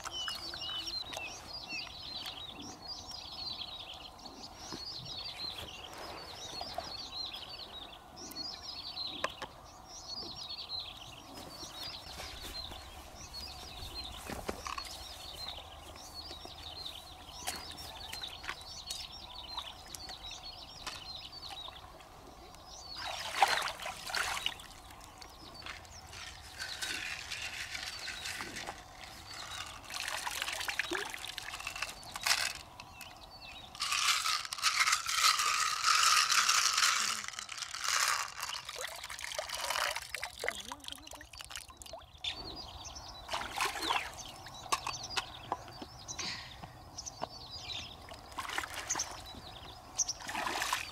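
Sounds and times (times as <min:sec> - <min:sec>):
water splashing and trickling: 0:00.0 - 0:02.3, 0:11.8 - 0:42.4, 0:43.2 - 0:45.2, 0:47.9 - 0:50.9
small birds chirping: 0:00.0 - 0:50.9.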